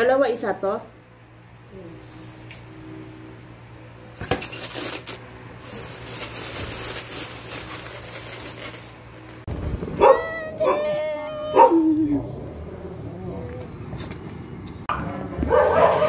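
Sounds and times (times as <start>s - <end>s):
plastic bags crinkling: 4.2s - 9.5s
dog barking: 10.0s - 10.8s, 11.5s - 11.8s, 15.4s - 16.0s.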